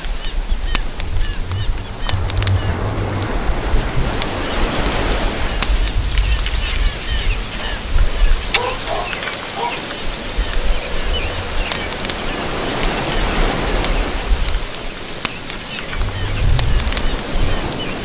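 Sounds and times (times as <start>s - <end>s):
lower bird calls: 0.0s - 14.2s, 14.8s - 18.0s
wind rumbling on microphone: 0.0s - 18.0s
small birds chirping: 5.6s - 14.1s.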